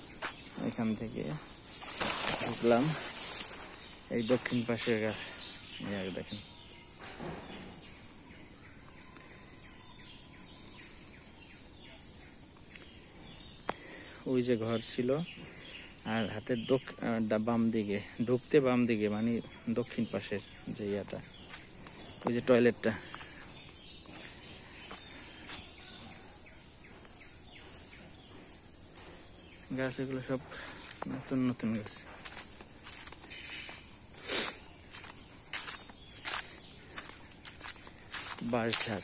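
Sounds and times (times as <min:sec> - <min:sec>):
footsteps on dry leaves: 0:00.0 - 0:05.4, 0:21.1 - 0:26.6, 0:27.2 - 0:39.0
insects droning: 0:00.0 - 0:39.0.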